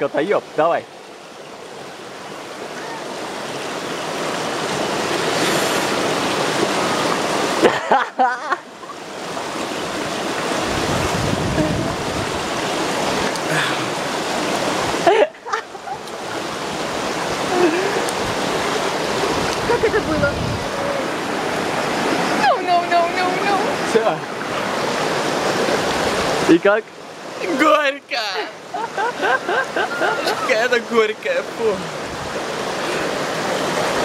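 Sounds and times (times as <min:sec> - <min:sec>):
stream rushing: 0:00.0 - 0:34.0
person's voice: 0:11.6 - 0:12.0, 0:19.7 - 0:21.2, 0:30.0 - 0:31.9.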